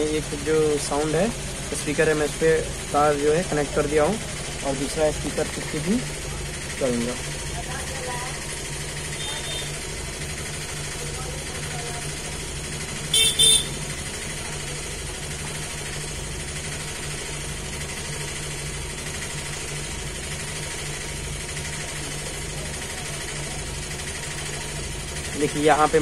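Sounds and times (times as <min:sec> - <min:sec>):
short horn toots: 0:09.1 - 0:09.8, 0:13.1 - 0:13.8.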